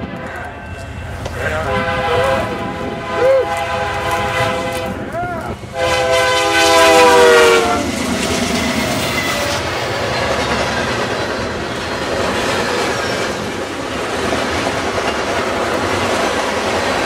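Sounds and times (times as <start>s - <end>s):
locomotive horn: 0.0s - 7.9s
diesel locomotive passing: 0.0s - 17.0s.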